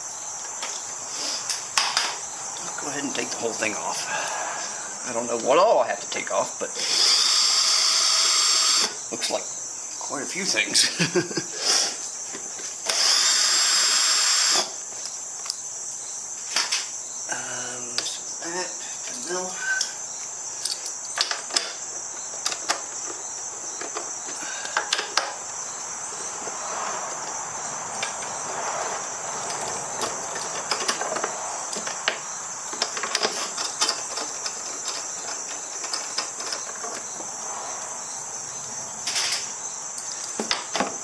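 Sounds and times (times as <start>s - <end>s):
high-pitched insect buzz: 4.1s - 10.1s, 11.0s - 30.6s, 31.2s - 41.0s
hand tools clicking and knocking: 23.8s - 25.4s, 29.4s - 37.1s.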